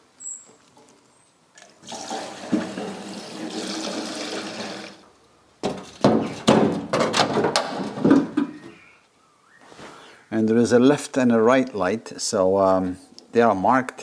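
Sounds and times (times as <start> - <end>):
sheet metal clunks and rattles: 5.6 - 8.7.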